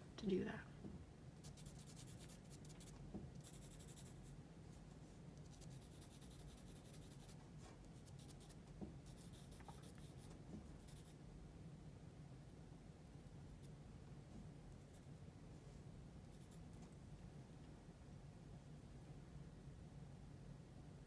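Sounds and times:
low steady hum: 0.0s - 21.0s
pencil scratching on paper: 1.4s - 4.3s, 5.4s - 11.1s.

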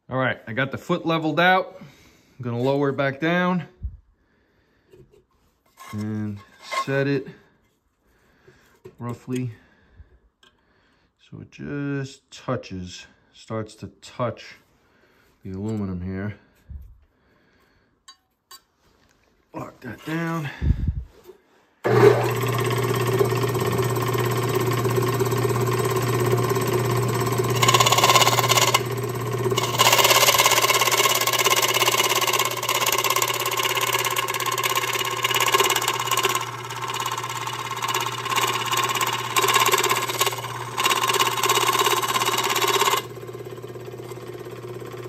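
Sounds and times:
saw blade cutting metal: 21.9s - 45.0s
scroll saw motor hum: 21.9s - 45.0s.

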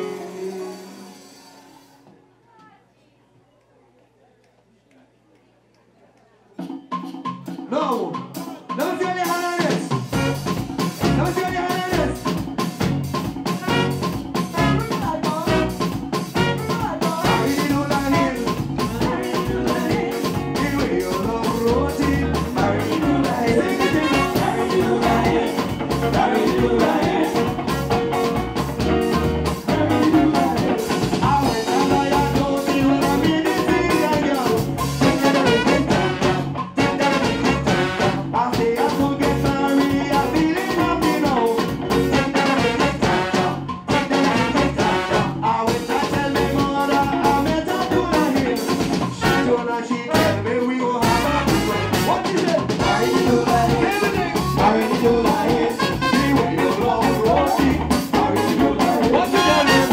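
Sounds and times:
bass guitar: 0.0s - 2.0s, 8.4s - 59.9s
lead singer: 0.0s - 2.0s, 14.6s - 59.9s
drum kit: 0.0s - 2.2s, 6.6s - 59.9s
backing vocals: 16.4s - 59.9s.

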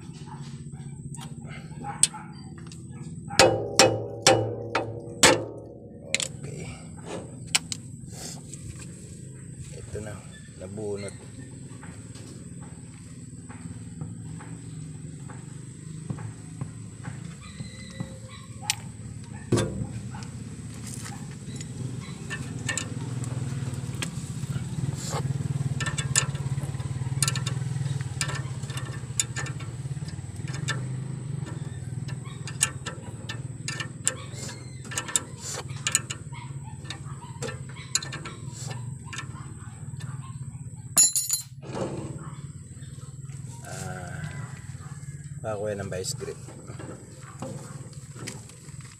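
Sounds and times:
steady low hum: 0.0s - 48.9s
wrench clicking on metal nut: 22.3s - 23.0s, 25.8s - 36.2s, 36.8s - 39.3s.

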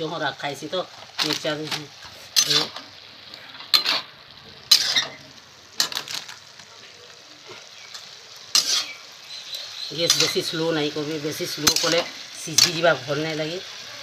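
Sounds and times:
vegetables sizzling in oil: 0.0s - 14.0s
metal spatula scraping a pan: 1.2s - 2.9s, 3.5s - 5.2s, 7.4s - 13.0s.

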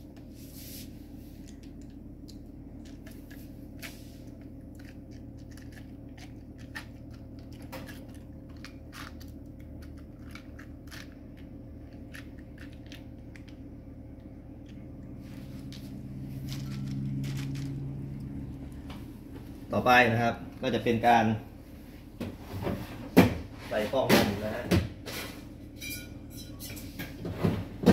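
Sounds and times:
steady low hum: 0.0s - 27.9s.

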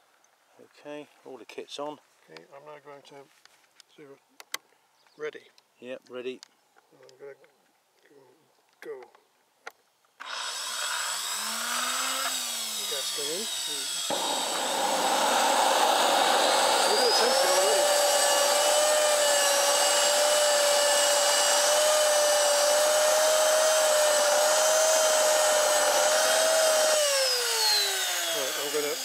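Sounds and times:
jet turbine whining: 10.3s - 29.0s.

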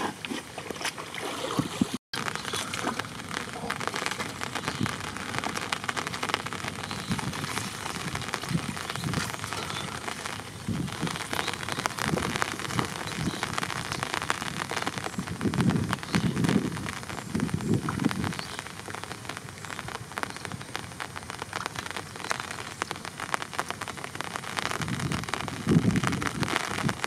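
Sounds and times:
water splashing around hands: 0.0s - 4.4s
shallow running water: 0.0s - 24.8s
rain patter: 1.2s - 27.0s.

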